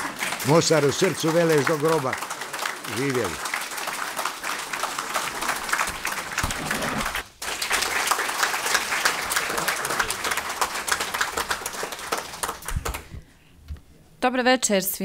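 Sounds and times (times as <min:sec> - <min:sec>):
audience applauding: 0:00.0 - 0:13.2.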